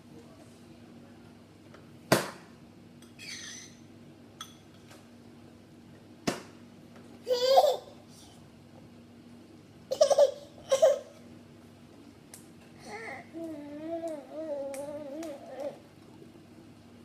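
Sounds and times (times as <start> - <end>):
baby laughing: 7.3 - 8.0, 9.9 - 11.1
baby making sounds: 12.8 - 15.8.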